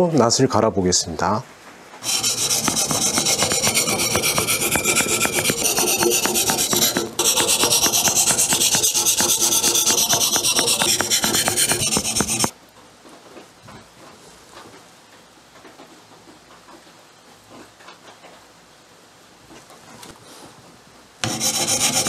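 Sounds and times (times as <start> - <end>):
whetstone scraping steel blade: 2.0 - 12.5, 21.2 - 22.0.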